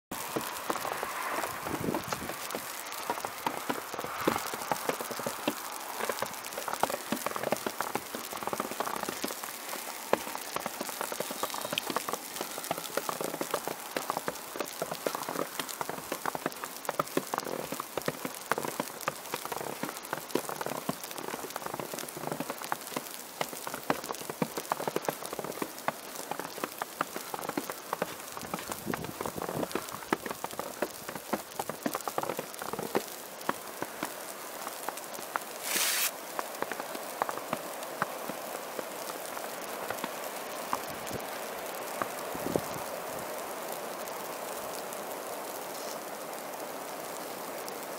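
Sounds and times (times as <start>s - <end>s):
precipitation pattering: 0.1s - 37.8s.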